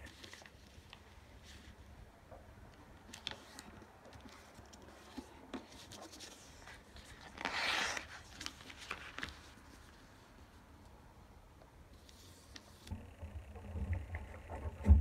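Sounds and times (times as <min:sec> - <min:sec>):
paper being folded by hand: 0:00.0 - 0:01.8, 0:03.1 - 0:10.8
paper rustling: 0:00.0 - 0:01.8, 0:03.1 - 0:10.6.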